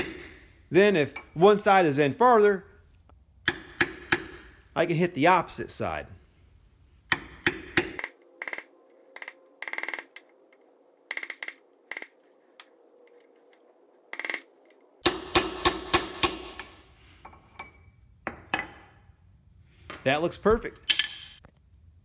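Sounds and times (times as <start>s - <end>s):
hammer striking metal socket: 3.4s - 4.5s, 20.8s - 21.4s.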